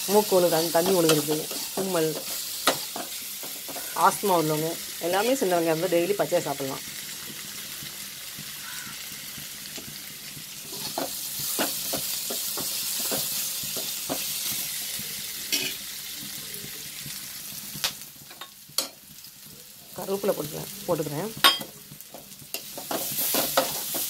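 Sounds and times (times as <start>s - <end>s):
onions sizzling in a pan: 0.0s - 24.0s
metal spoon scraping a pan: 0.2s - 4.3s, 10.6s - 14.7s, 15.5s - 15.8s, 21.4s - 24.0s.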